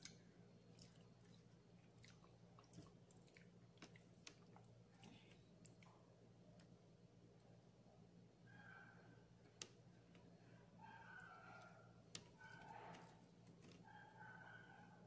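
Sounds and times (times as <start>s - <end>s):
faint chewing: 0.0s - 6.8s.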